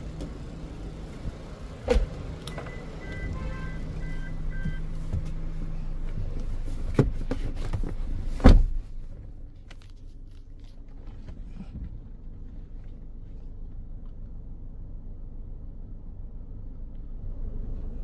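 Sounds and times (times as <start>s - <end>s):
low background hum: 0.0s - 18.0s
car door shutting thump: 1.8s - 2.8s, 8.4s - 8.8s.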